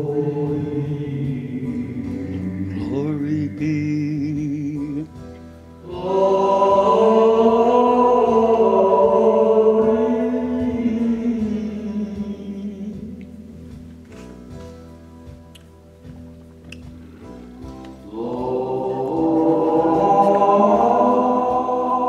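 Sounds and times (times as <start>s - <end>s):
man singing with vibrato: 0.0s - 5.2s, 5.8s - 13.6s, 18.1s - 22.0s.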